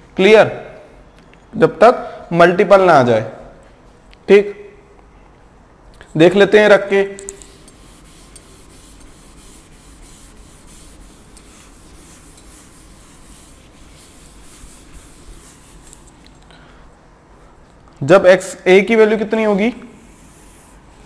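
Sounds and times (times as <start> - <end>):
duster scrubbing a chalkboard: 7.4 - 16.4, 20.0 - 21.0.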